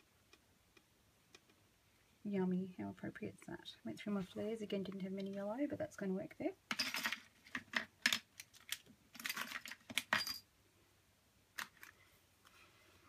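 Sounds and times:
small embellishments clicking and clattering: 0:06.7 - 0:10.4, 0:11.6 - 0:12.0.

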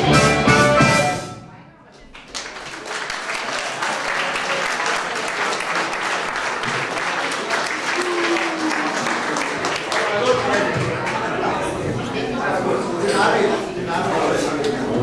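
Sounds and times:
audience applauding: 0:02.0 - 0:11.4.

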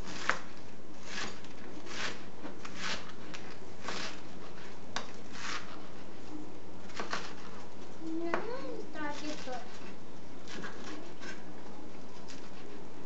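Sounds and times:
knife slicing cabbage on board: 0:00.0 - 0:06.0, 0:06.9 - 0:07.5, 0:09.1 - 0:11.4.

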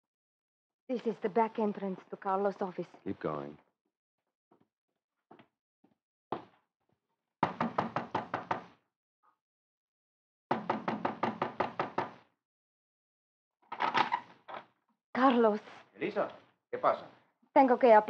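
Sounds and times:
rapid knocking on a door: 0:07.4 - 0:08.8, 0:10.5 - 0:12.3.

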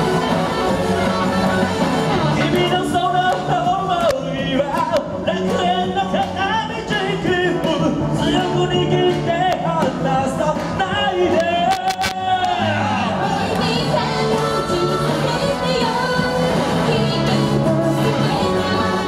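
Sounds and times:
live pop-rock band playing: 0:00.0 - 0:19.0
women singing: 0:12.6 - 0:19.0.

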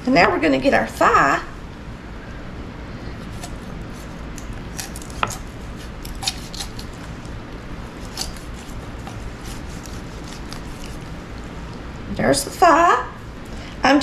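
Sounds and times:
knife cutting raw chicken: 0:04.7 - 0:06.9, 0:08.0 - 0:11.2.

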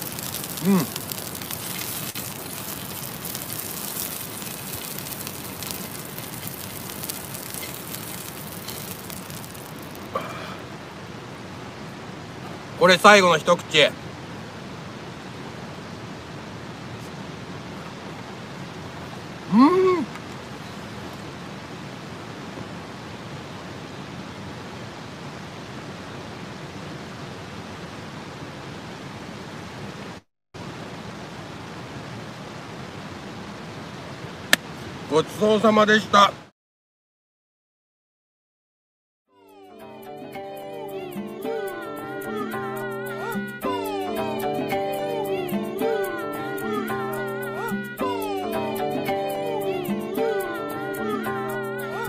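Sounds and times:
fat sizzling in a frying pan: 0:00.0 - 0:10.2.

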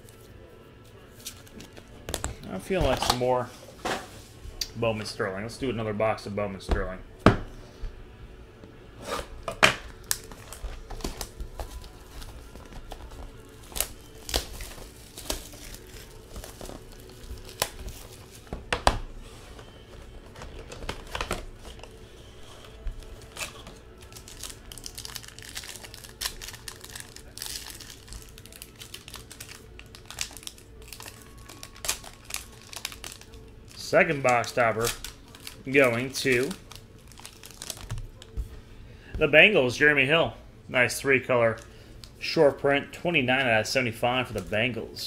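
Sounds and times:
plastic wrap crackling and ripping: 0:09.7 - 0:38.4.

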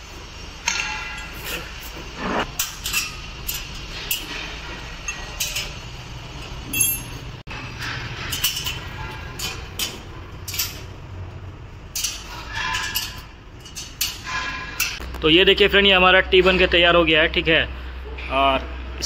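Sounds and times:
spanner working on joints: 0:00.6 - 0:15.2
metal tray clinks and scrapes: 0:02.4 - 0:10.9, 0:12.0 - 0:15.0.

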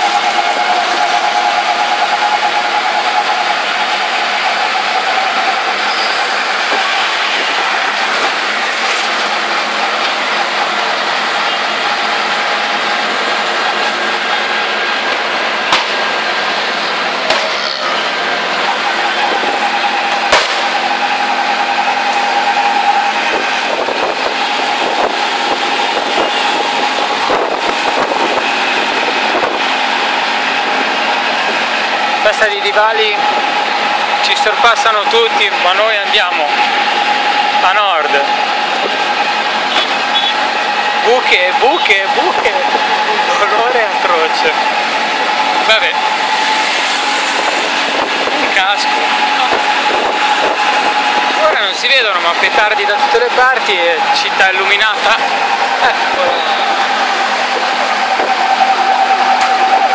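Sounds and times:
auto-rickshaw engine running: 0:00.0 - 0:59.9
road and wind noise: 0:00.0 - 0:59.9
sharp crack: 0:15.7 - 0:16.0, 0:17.3 - 0:17.5, 0:20.1 - 0:20.8.

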